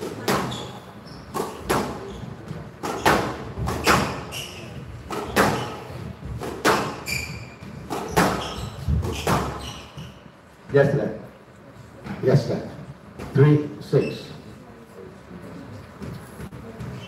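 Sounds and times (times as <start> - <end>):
shoes squeaking on court floor: 0.1 - 10.8, 13.2 - 14.5, 15.8 - 17.0
squash ball cracking off rackets: 5.0 - 7.1.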